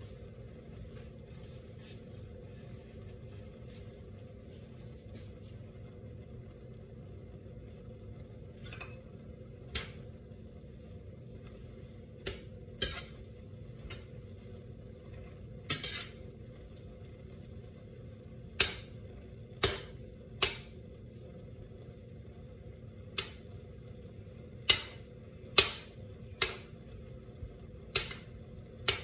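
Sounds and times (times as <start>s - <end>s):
metal spoon clinking against pan: 12.2s - 13.2s, 15.7s - 16.2s, 27.9s - 28.3s.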